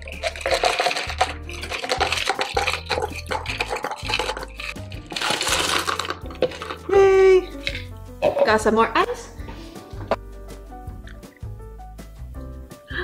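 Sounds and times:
ice cubes clinking into glass jar: 0:00.0 - 0:06.9
background music: 0:00.0 - 0:13.0.

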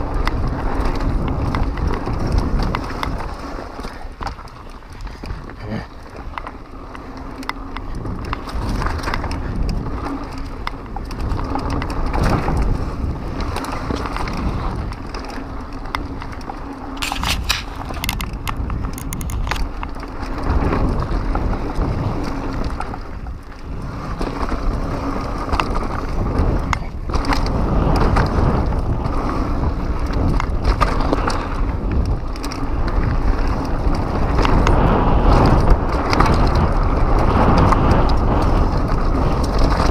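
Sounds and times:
bike tyres rattling over dirt: 0:00.0 - 0:39.9
sharp clicking: 0:15.0 - 0:20.0.

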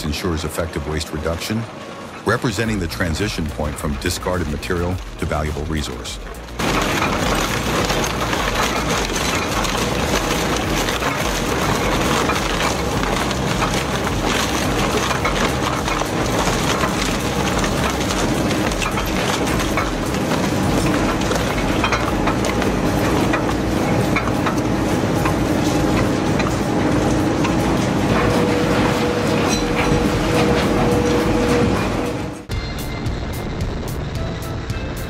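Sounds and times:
wood cracking and splintering: 0:03.8 - 0:31.8
shredder machine hum: 0:05.9 - 0:35.0.

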